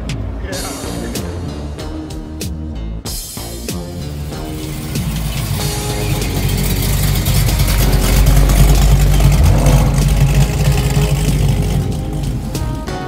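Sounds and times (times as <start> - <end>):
car engine revving: 3.9 - 13.0.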